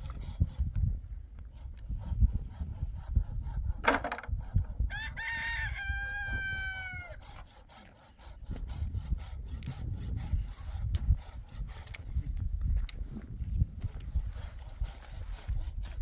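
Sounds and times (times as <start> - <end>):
scraping and knocking: 3.8 - 4.4
rooster crowing: 4.9 - 7.2.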